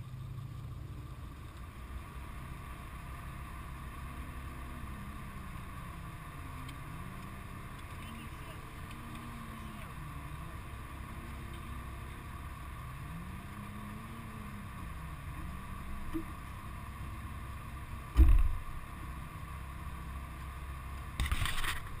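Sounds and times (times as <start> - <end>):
steady low rumble: 0.0 - 22.0
car door slamming: 18.1 - 18.6.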